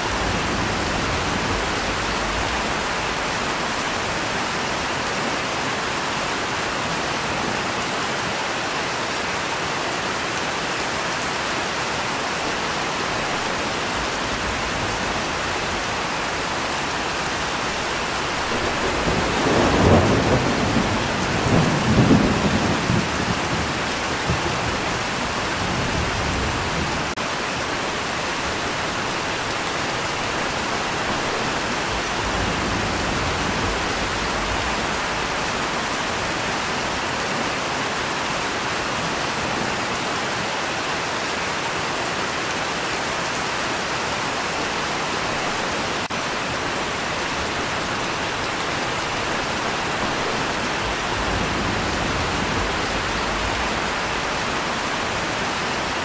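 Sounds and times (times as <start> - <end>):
steady rain hissing: 0.0 - 56.0
thunder rolling: 17.3 - 27.2, 47.4 - 55.4.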